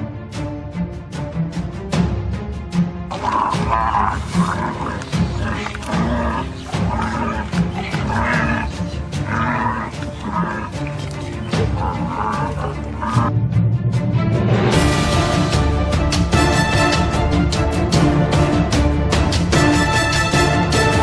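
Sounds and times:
big cat roaring and snarling: 0:03.1 - 0:13.3.

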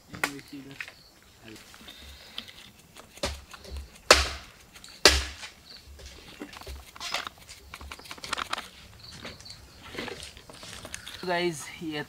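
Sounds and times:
knife chopping on wooden board: 0:03.0 - 0:05.5.

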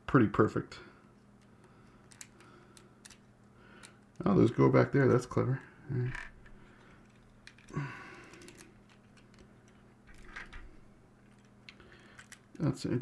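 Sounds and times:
plastic bricks clicking and rattling: 0:06.0 - 0:12.6.

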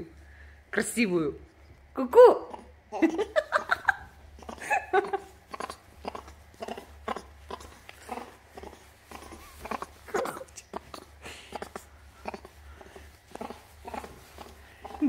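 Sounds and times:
baby baboon laughing sounds: 0:02.5 - 0:15.0
baby baboon calls: 0:04.4 - 0:15.0.

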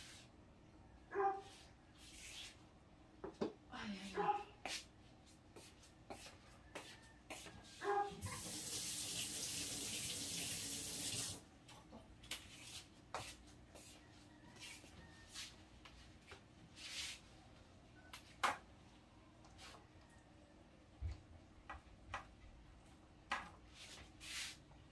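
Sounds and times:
water running from a tap: 0:08.2 - 0:11.4.

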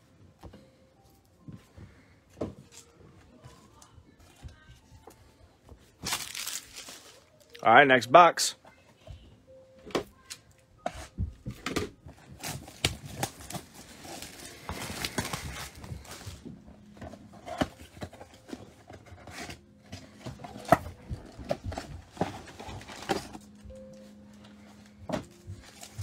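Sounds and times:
shrink-wrap crinkling and tearing: 0:06.0 - 0:07.6, 0:12.3 - 0:16.4.

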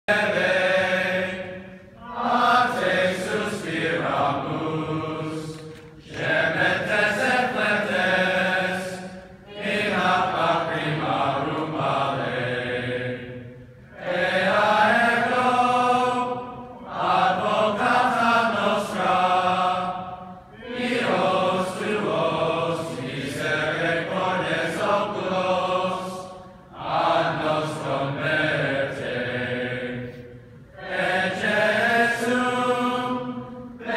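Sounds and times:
male choir singing: 0:00.1 - 0:33.9.

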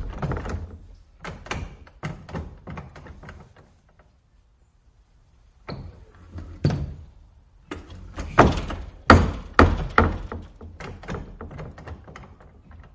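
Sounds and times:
wooden door rattling: 0:00.0 - 0:03.7, 0:06.4 - 0:12.9
screen door banging shut: 0:07.7 - 0:12.9.

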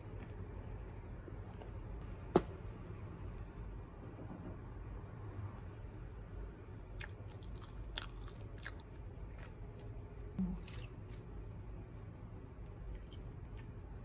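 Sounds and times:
crunchy biting and chewing: 0:07.0 - 0:09.6.

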